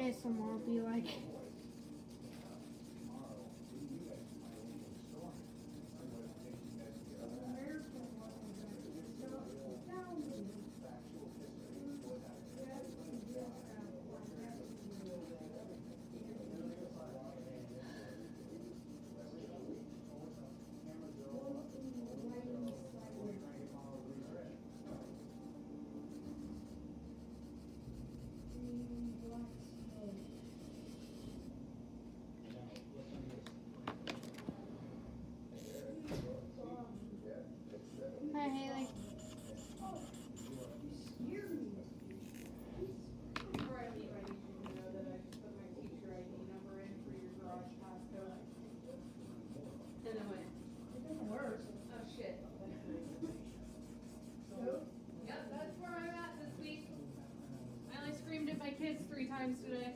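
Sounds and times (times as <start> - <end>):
marker rubbing on paper: 0.0 - 25.4, 26.1 - 31.5, 38.8 - 40.8, 46.8 - 59.1.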